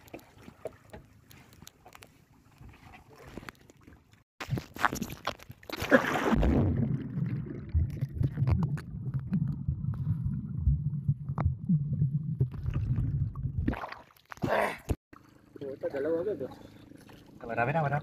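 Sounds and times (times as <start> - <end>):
water splash: 4.5 - 10.2, 12.4 - 14.6
muffled underwater rumble: 7.6 - 13.7.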